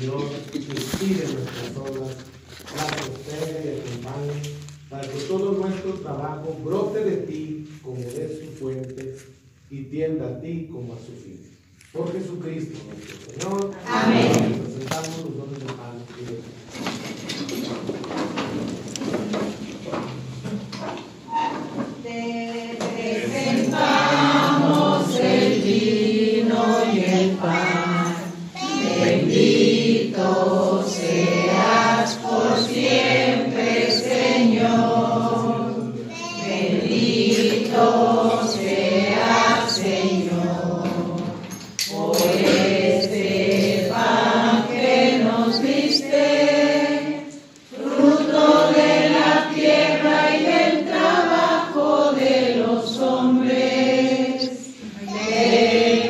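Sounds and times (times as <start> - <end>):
choir singing a hymn: 13.7 - 14.9, 21.3 - 56.0.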